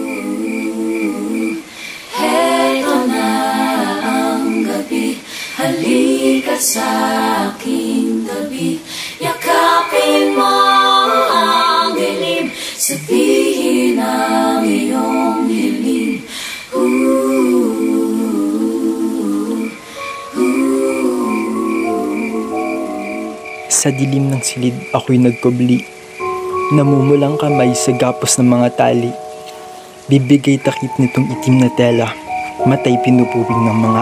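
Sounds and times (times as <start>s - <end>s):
unaccompanied singing voices: 0.0s - 34.0s.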